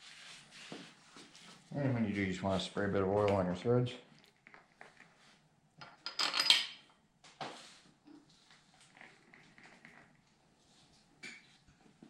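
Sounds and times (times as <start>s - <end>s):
metal parts clinking and clattering: 5.8s - 6.8s.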